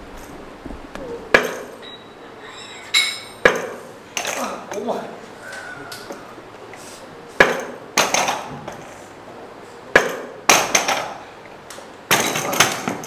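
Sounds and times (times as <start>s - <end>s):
barbell clanking: 1.3s - 5.0s.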